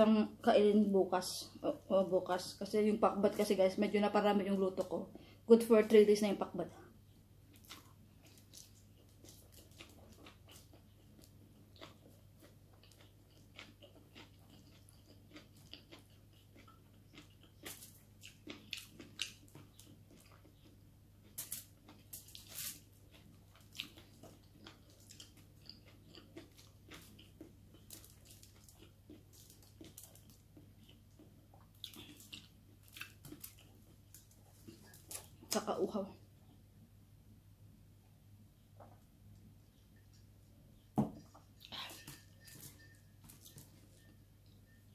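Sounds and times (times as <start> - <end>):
person chewing close-up: 7.1 - 35.6, 41.2 - 44.9.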